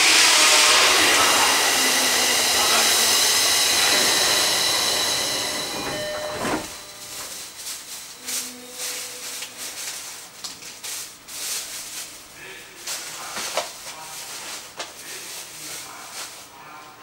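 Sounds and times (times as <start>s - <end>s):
train doors shutting with a thump: 0.0s - 7.4s
loud steady hiss: 0.0s - 7.6s.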